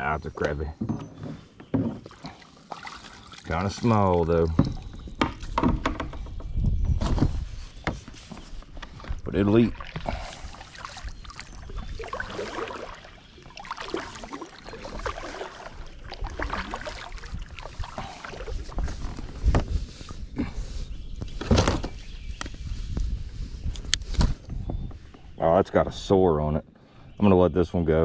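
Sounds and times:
water lapping and splashing: 1.4s - 5.6s, 7.7s - 20.8s.

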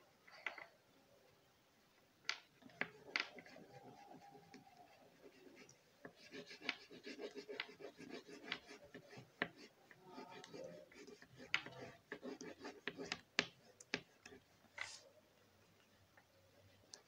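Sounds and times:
oil pastel scratching on paper: 2.6s - 15.1s.

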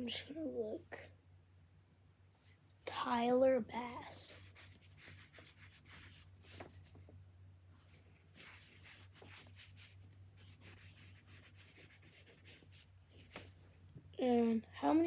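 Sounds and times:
pencil scratching on paper: 4.2s - 6.8s, 7.8s - 13.6s.

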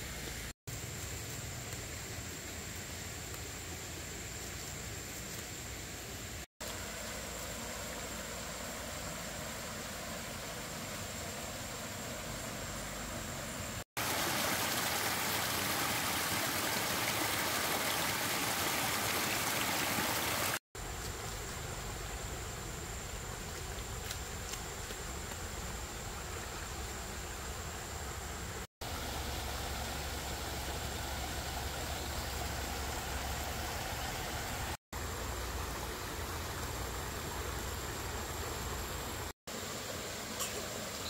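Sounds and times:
stream water rushing: 6.6s - 20.6s, 28.4s - 41.0s.

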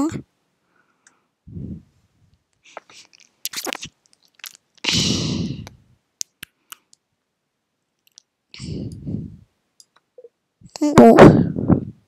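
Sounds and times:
small mouth noises: 2.6s - 7.0s, 8.0s - 9.1s.

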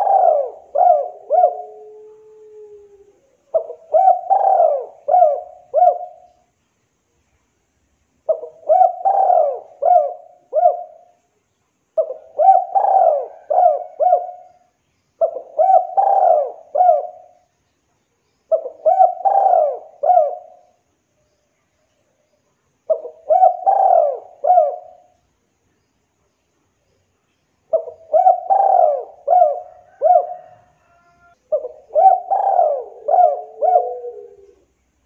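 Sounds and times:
dove cooing: 0.0s - 6.4s, 8.2s - 11.2s, 12.0s - 17.5s, 18.5s - 20.8s, 22.9s - 25.2s, 27.7s - 34.8s.

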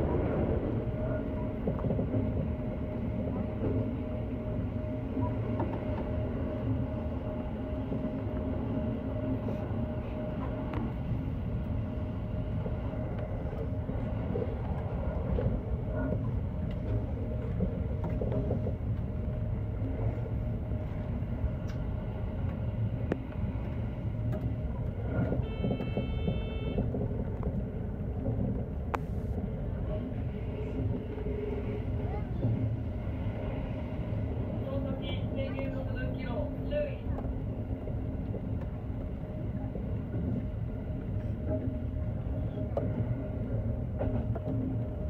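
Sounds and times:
train wheels rumbling: 0.0s - 45.0s
click: 21.6s - 21.8s, 28.9s - 29.1s
short tone: 25.4s - 26.8s.

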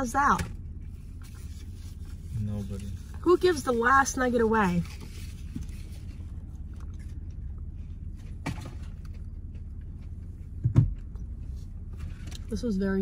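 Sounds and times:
car cabin hum: 0.0s - 13.0s
thump: 10.6s - 11.0s.

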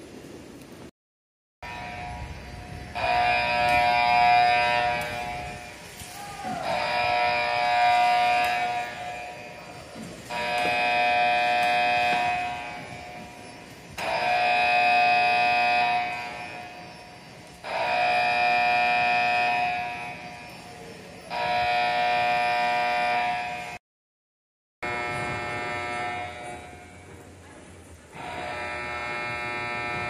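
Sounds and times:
alarm horn blasts: 1.6s - 23.8s, 24.8s - 27.1s, 28.2s - 30.0s.

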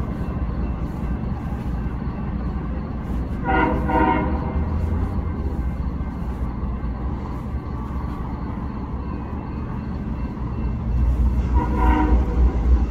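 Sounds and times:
diesel locomotive rumble: 0.0s - 12.9s.

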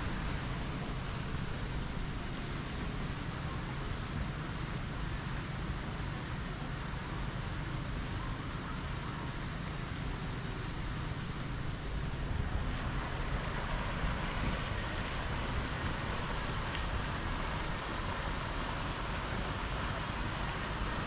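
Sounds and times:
distant city traffic: 0.0s - 21.0s.

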